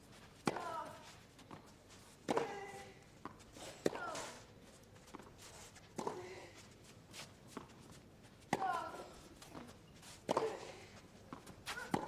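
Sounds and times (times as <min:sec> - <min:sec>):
racket hitting tennis ball: 0:00.4 - 0:01.0, 0:02.3 - 0:02.9, 0:03.6 - 0:04.4, 0:08.5 - 0:10.8, 0:11.4 - 0:12.0
tennis ball bouncing: 0:00.4 - 0:01.6, 0:02.2 - 0:04.2, 0:08.5 - 0:08.9, 0:09.5 - 0:12.0.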